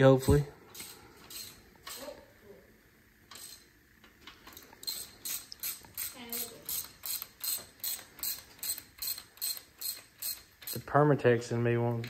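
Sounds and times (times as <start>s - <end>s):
socket ratchet clicking: 4.4s - 10.8s.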